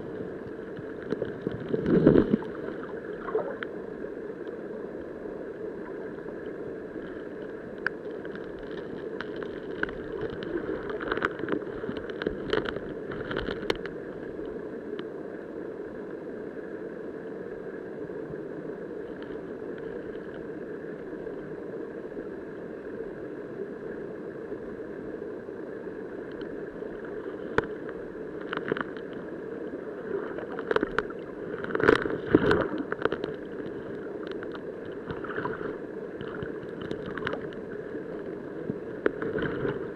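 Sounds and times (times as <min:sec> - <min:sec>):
underwater river rushing hum: 0:00.0 - 0:39.9
sharp underwater clicks and knocks: 0:07.8 - 0:14.0, 0:28.4 - 0:29.2, 0:30.4 - 0:37.6.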